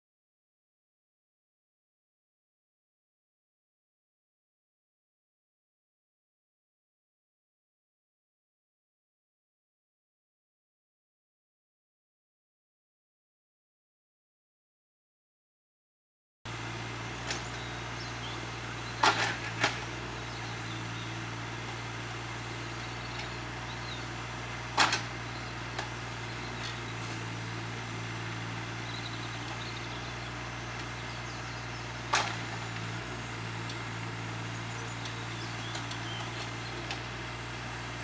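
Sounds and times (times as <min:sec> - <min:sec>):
diesel engine running: 0:16.5 - 0:38.0
excavator bucket clunks: 0:19.0 - 0:20.0, 0:24.8 - 0:25.9, 0:32.1 - 0:32.9.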